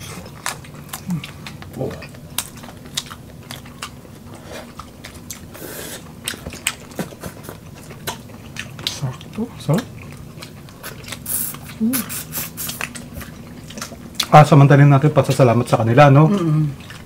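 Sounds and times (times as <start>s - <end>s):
people chewing food: 0.0s - 17.0s.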